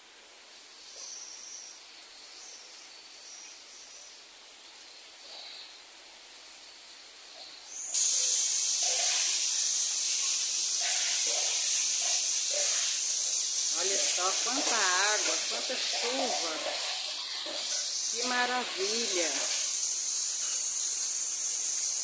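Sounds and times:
heavy rain pouring off roof: 8.0 - 22.0
steady rain falling: 8.0 - 22.0.

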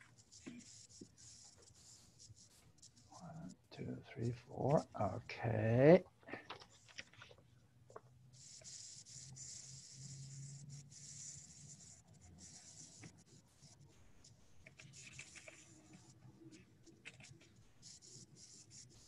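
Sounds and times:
pen scratching on paper: 0.0 - 3.9, 8.4 - 19.0.

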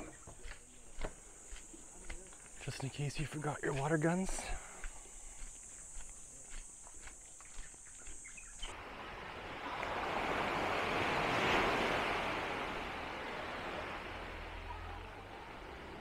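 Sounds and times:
small wave breaking on beach: 8.7 - 16.0.

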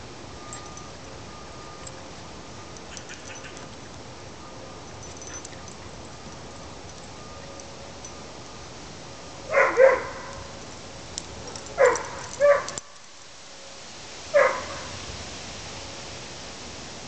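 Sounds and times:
dog barking: 9.5 - 10.5, 11.8 - 12.8, 14.3 - 15.0.

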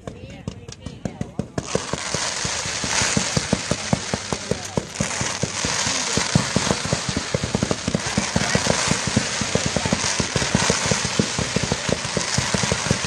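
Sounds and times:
fireworks bangs and pops: 0.0 - 13.0
fountain fireworks hissing: 1.4 - 13.0.

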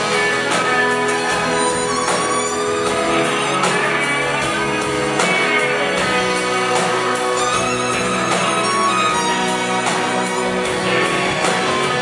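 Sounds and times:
bass guitar: 0.0 - 12.0
drums: 0.0 - 12.0
electric guitars: 0.0 - 12.0
keyboards: 0.0 - 12.0
violin lead: 0.0 - 12.0.

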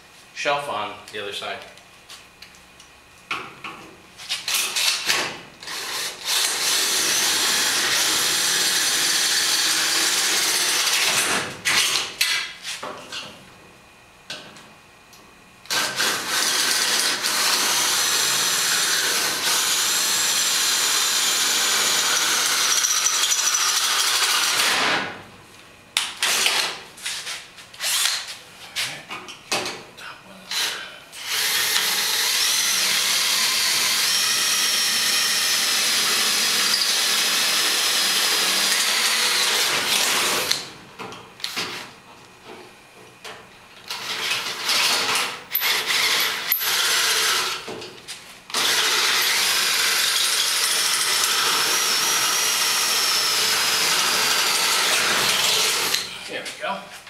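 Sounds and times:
power drill boring through metal: 4.5 - 11.3, 15.7 - 24.9, 30.5 - 40.6, 43.9 - 47.7, 48.5 - 56.1.

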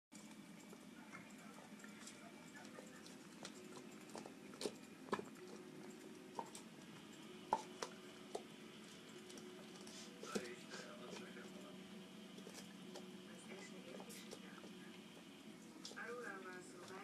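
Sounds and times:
dog gnawing bone: 1.2 - 11.4, 12.3 - 13.2.

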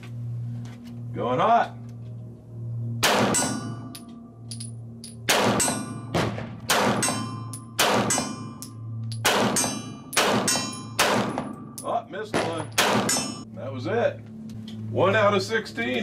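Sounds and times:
pistol shots: 3.0 - 3.7, 5.3 - 8.4, 9.2 - 11.7, 12.3 - 13.4
steel plates clanging: 7.0 - 11.0.

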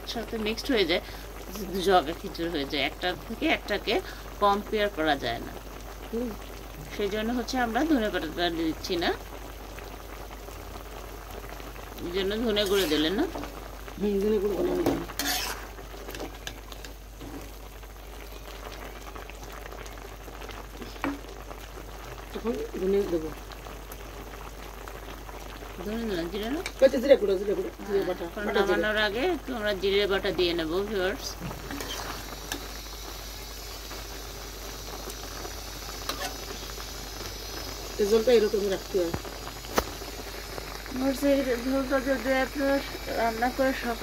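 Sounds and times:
curry bubbling: 0.0 - 44.0
metal spatula scraping pan: 12.6 - 13.2, 14.8 - 16.4, 31.7 - 32.2.

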